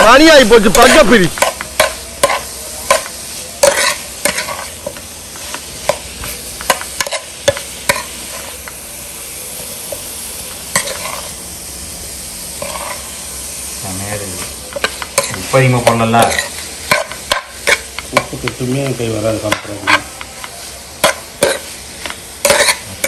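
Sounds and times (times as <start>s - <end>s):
food sizzling in a pan: 0.0s - 23.0s
metal spatula scraping a pan: 0.7s - 8.8s, 10.7s - 11.4s, 12.6s - 13.2s, 14.3s - 20.3s, 21.0s - 23.0s.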